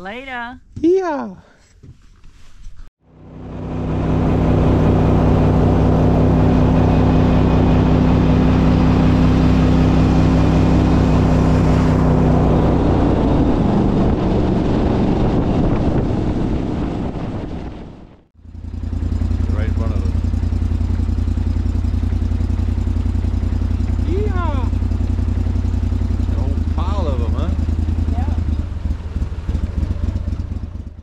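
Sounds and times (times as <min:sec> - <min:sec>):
outboard motor running: 0:03.0 - 0:31.0
wind and water rushing: 0:03.4 - 0:18.1.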